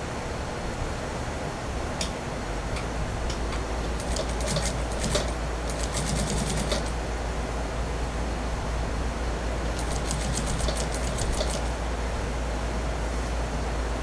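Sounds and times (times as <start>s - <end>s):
sewing machine stitching: 3.9s - 7.0s, 9.7s - 11.7s.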